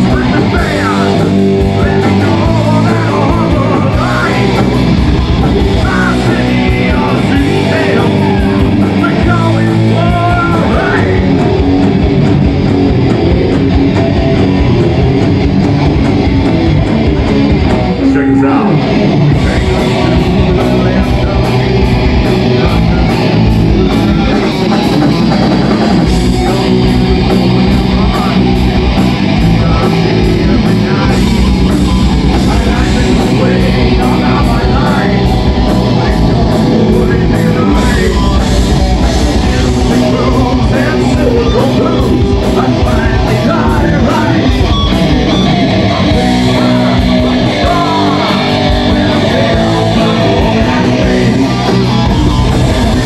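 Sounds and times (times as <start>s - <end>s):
person singing into a microphone: 0.0s - 4.8s, 5.6s - 11.4s, 32.4s - 44.9s, 45.9s - 52.1s
bass guitar: 0.0s - 53.0s
drum kit: 0.0s - 53.0s
electric guitars: 0.0s - 53.0s.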